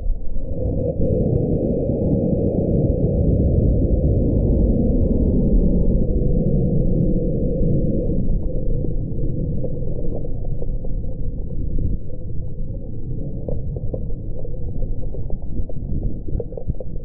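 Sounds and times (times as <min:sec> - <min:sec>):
wind buffeting camera: 0:00.0 - 0:17.0
grit ticking on camera: 0:08.3 - 0:17.0.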